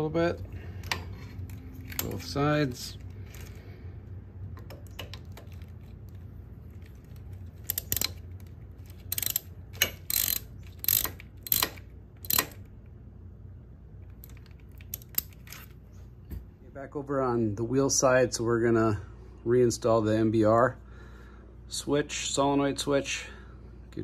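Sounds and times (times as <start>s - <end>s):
low steady hum: 0.0s - 24.0s
hand ratchet clicking: 6.8s - 12.7s, 14.1s - 15.6s.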